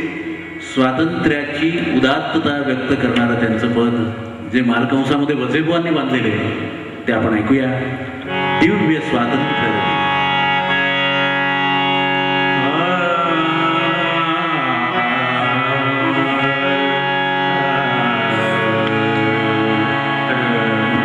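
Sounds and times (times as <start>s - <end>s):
harmonium: 7.2s - 21.0s
tanpura drone: 7.8s - 21.0s
man singing: 12.5s - 21.0s.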